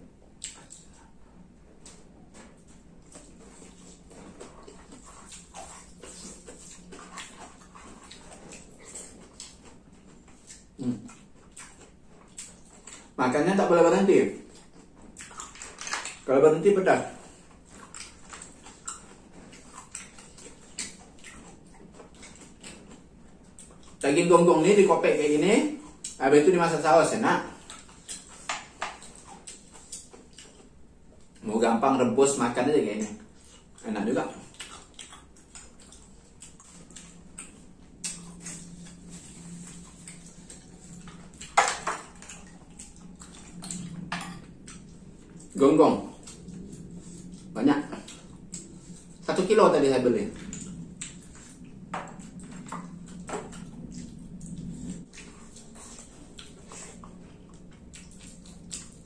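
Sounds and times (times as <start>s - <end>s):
chewing sounds: 0.0s - 59.0s
faint steady hum: 0.0s - 59.0s.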